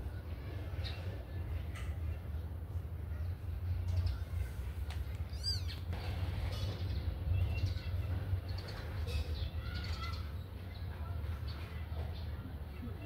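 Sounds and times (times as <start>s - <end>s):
kittens mewing: 5.2s - 5.9s.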